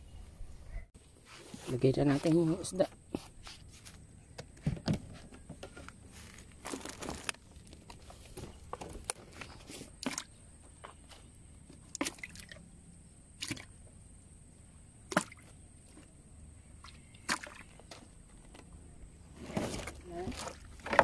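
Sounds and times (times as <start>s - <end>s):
low steady background noise: 0.0s - 21.0s
water drips and splashes: 11.9s - 12.7s, 13.4s - 13.8s.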